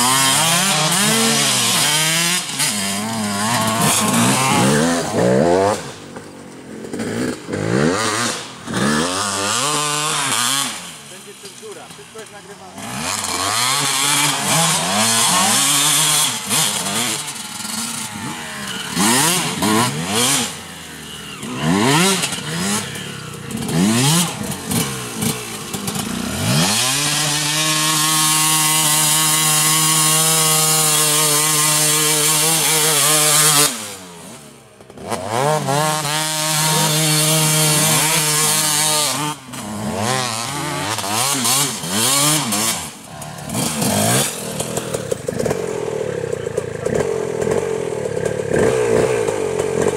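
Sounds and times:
dirt bike engines revving: 0.0s - 49.9s.

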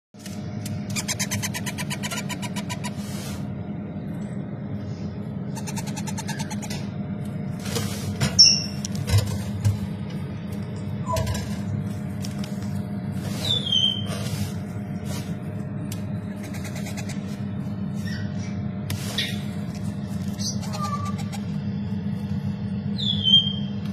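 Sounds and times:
steady low hum: 0.2s - 23.9s
parrot chicks squeaking: 0.9s - 3.0s, 5.5s - 6.8s, 8.4s - 8.8s, 13.3s - 14.2s, 16.3s - 17.3s, 18.0s - 19.5s, 20.3s - 21.4s, 23.0s - 23.7s
rapid chatter of parrot chicks: 0.9s - 3.2s, 5.5s - 6.9s, 13.2s - 14.5s, 16.2s - 21.6s.

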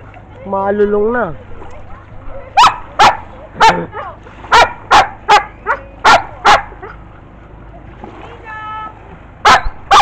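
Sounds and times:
dog barking: 2.6s - 3.9s, 4.5s - 7.0s, 9.4s - 10.0s.

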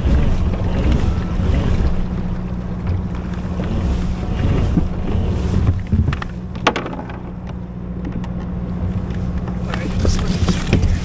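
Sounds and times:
kayak moving on water: 0.0s - 11.0s
wind rumbling on microphone: 0.0s - 11.0s
sharp knocks: 5.7s - 8.2s.

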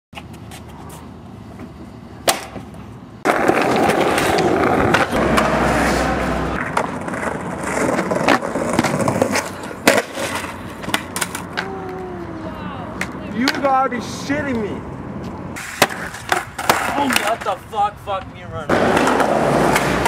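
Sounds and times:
skateboard wheels rolling: 0.2s - 20.0s
skateboard clacking on concrete: 6.6s - 12.0s, 12.9s - 13.8s, 15.6s - 20.0s.

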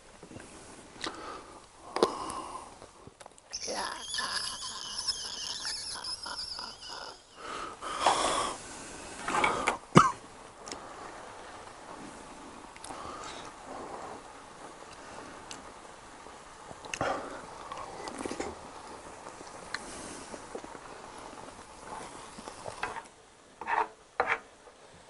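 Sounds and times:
ketchup sputtering from packet: 3.5s - 7.5s.

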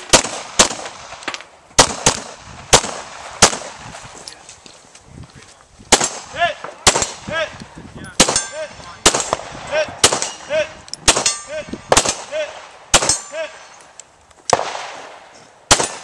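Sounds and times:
pistol shots: 0.0s - 3.9s, 5.9s - 7.4s, 8.2s - 13.6s, 14.5s - 16.0s
bullet ringing steel target: 8.2s - 8.8s, 10.0s - 11.7s, 13.0s - 13.8s.

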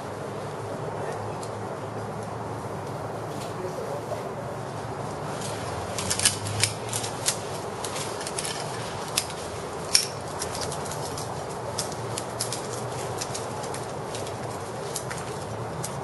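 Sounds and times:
steady background hiss: 0.0s - 16.0s
carabiners clinking on harness: 5.4s - 16.0s.

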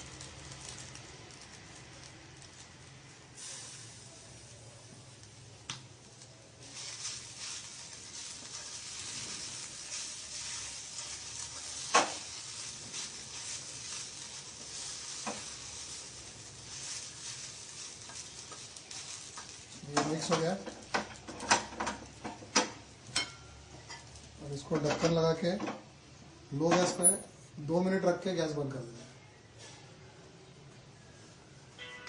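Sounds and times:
food sizzling in a pan: 0.0s - 27.2s
wooden spatula scraping a pan: 6.7s - 22.2s.

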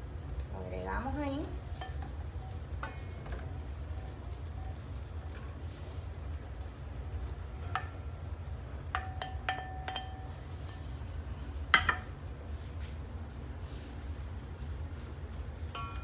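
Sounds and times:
low steady hum: 0.0s - 16.0s
light glass clinks: 9.0s - 10.3s.

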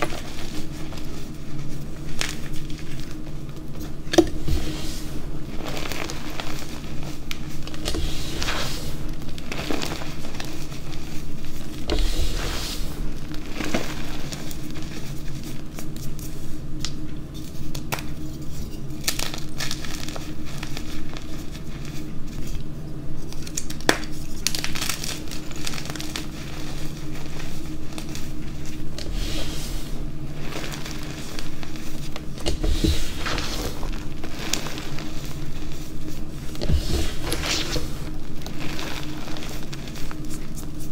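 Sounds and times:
chalk crunching and crackling: 0.0s - 40.9s.

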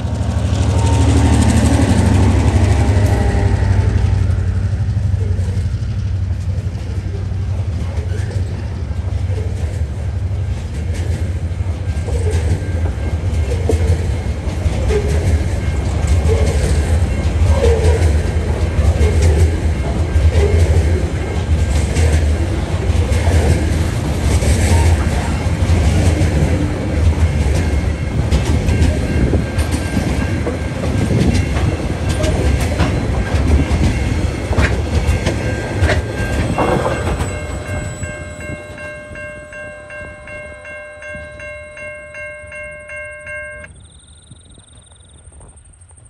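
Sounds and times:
freight train rolling past: 0.0s - 46.0s
level crossing warning bell: 0.8s - 6.2s, 10.3s - 45.1s
train wheel clicks: 7.7s - 39.2s.

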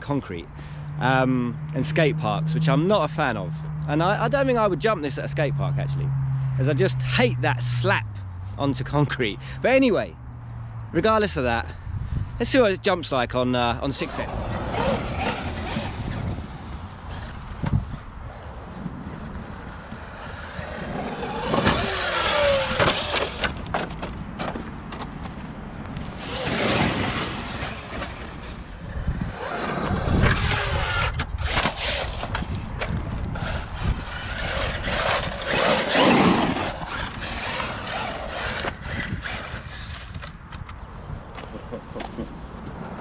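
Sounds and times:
electric motor whining: 14.1s - 17.4s, 20.1s - 23.7s, 26.1s - 28.5s, 29.3s - 32.6s, 33.3s - 40.2s
tyres scrabbling on stony ground: 20.3s - 40.6s.

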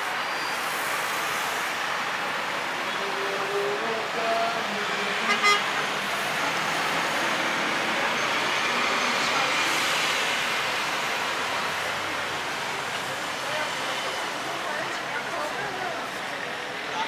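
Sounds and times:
city road traffic: 0.0s - 17.0s
car horn tooting: 5.3s - 5.8s.

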